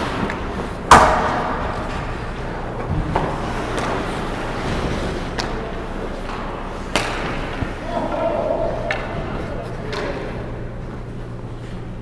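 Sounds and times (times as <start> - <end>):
rink background noise: 0.0 - 12.0.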